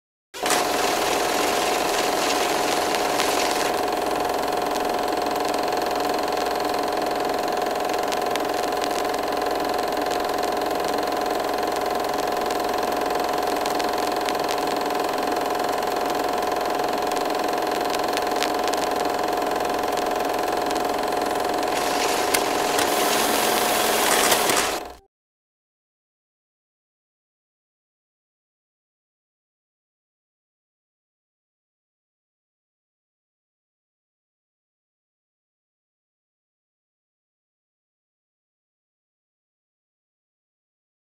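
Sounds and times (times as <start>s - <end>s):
film projector whir and clatter: 0.4s - 25.0s.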